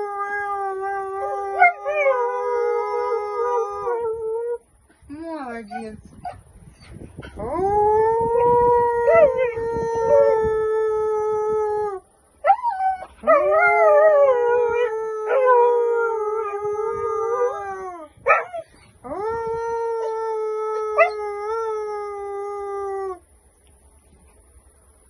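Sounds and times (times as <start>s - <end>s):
dog howling: 7.4s - 12.0s, 12.6s - 23.2s.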